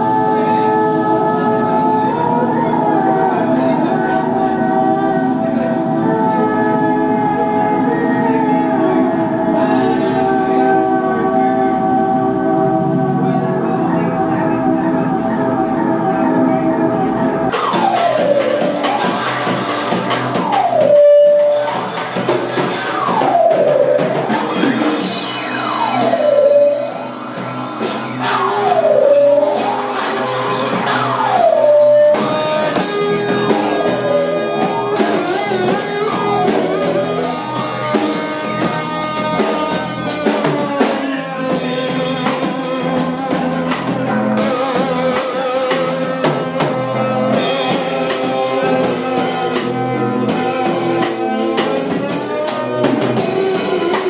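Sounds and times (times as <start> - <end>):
swooping pitched tone: 0.0 - 54.0
drum kit with cymbals: 14.2 - 54.0.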